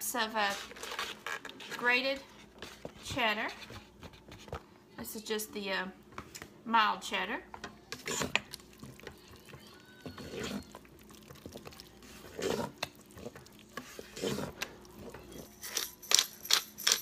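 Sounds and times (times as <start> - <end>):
wooden spoon stirring grits: 0.1 - 4.6, 7.9 - 15.4.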